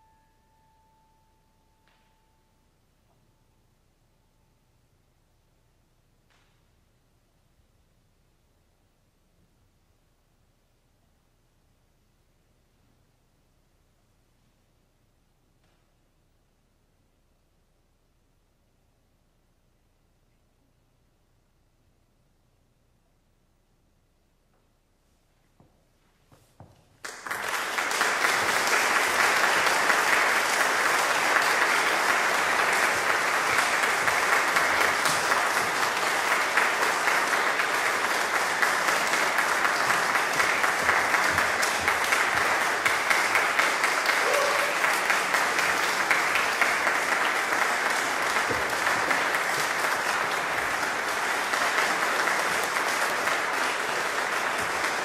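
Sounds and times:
audience applauding: 27.0 - 55.0.

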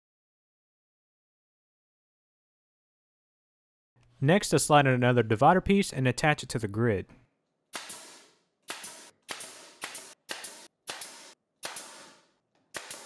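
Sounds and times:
brad nailer firing: 7.7 - 13.0.

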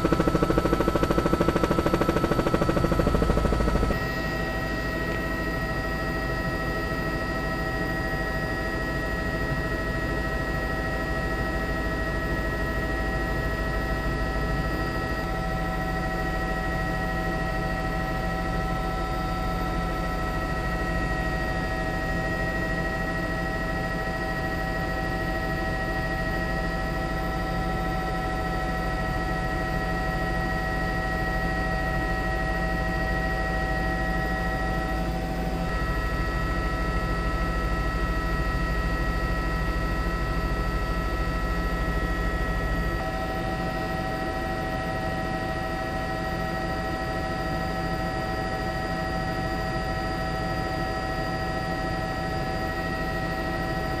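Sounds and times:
helicopter engine drone: 0.0 - 54.0.

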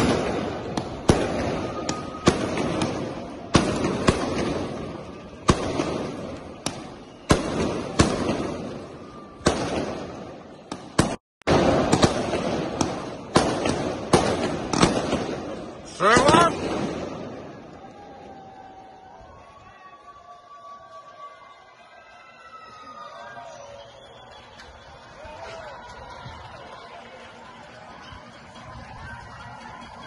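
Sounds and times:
fireworks bangs echoing: 0.0 - 18.3.

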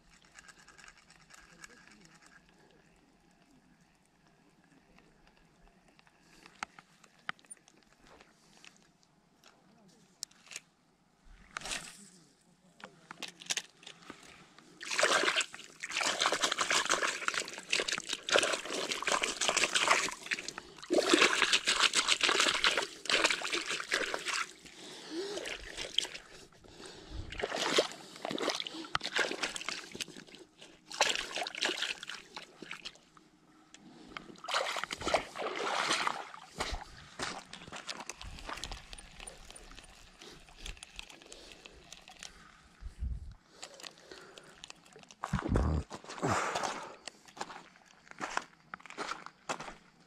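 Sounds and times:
footsteps on wet pebbles: 14.8 - 24.6, 34.4 - 42.4, 43.6 - 50.0.

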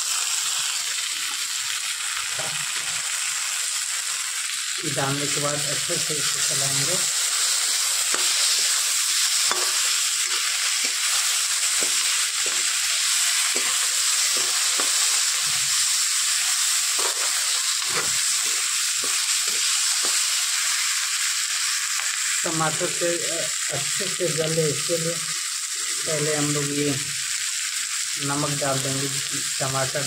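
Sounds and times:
vegetables sizzling in hot oil: 0.0 - 30.0
metal ladle scraping a pan: 8.1 - 8.8, 9.4 - 15.8, 17.0 - 20.2.

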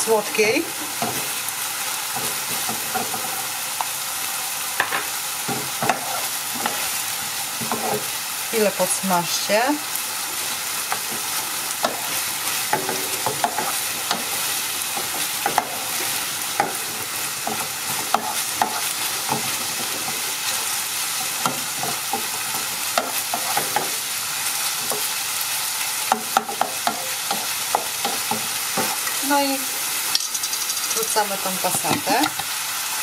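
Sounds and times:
meat sizzling in a frying pan: 0.0 - 33.0
wooden spoon scraping a pan: 5.5 - 8.1, 10.4 - 24.0.

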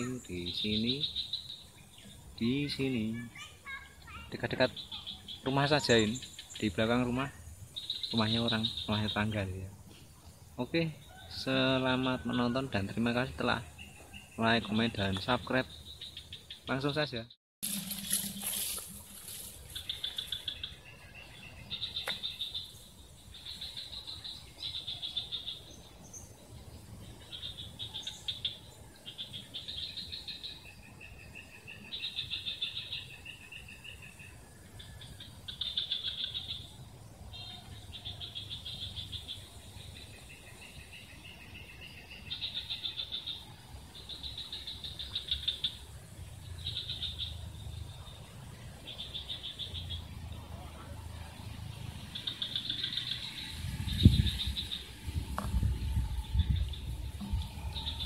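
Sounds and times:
rapid pulsed animal chirps: 17.6 - 25.8, 27.1 - 50.1, 52.0 - 58.0
soft low trill: 55.1 - 58.0.

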